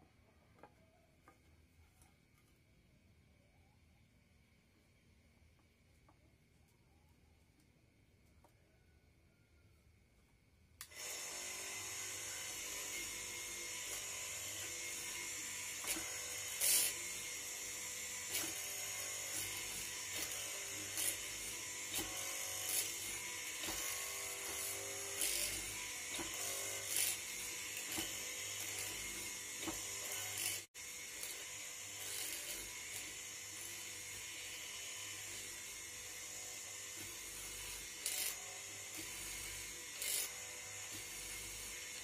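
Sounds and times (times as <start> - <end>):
mortiser motor running: 10.8 - 42.0.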